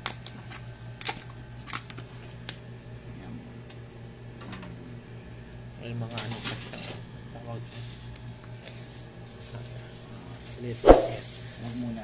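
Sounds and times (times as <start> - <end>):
steady low hum: 8.3 - 11.6.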